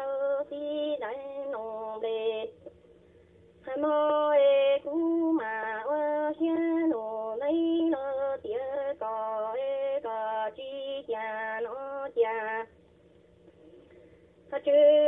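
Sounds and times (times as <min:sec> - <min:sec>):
woman singing: 0:00.0 - 0:02.7, 0:03.6 - 0:12.7, 0:14.5 - 0:15.0.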